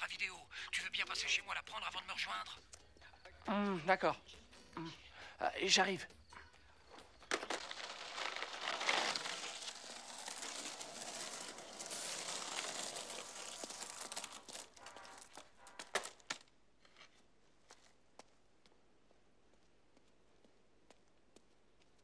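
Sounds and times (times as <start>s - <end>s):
skateboard wheels rolling on asphalt: 6.9s - 18.3s.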